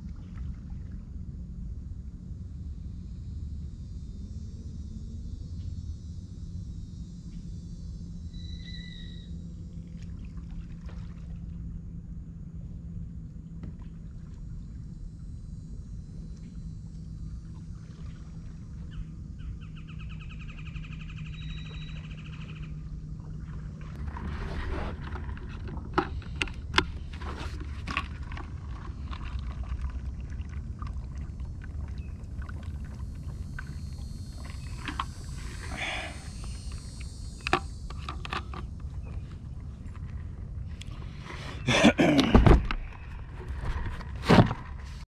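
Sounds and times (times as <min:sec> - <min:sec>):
low steady rumble: 0:00.0 - 0:45.0
paddle splashing water: 0:09.9 - 0:11.6, 0:17.4 - 0:19.0, 0:23.2 - 0:45.0.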